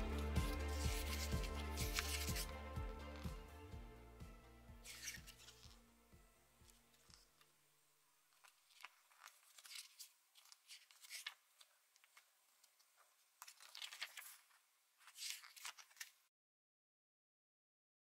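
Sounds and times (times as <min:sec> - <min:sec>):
book pages turning: 0:00.0 - 0:03.4, 0:04.8 - 0:05.8, 0:06.6 - 0:07.6, 0:08.3 - 0:16.3.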